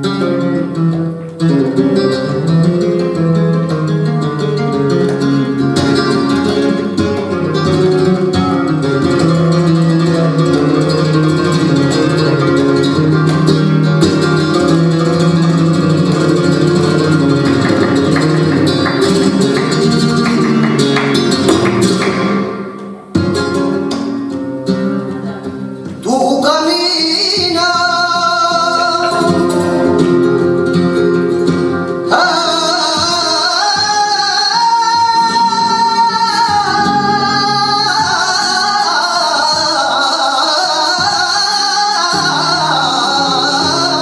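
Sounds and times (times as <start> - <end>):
flamenco guitar playing: 0.0 - 44.0.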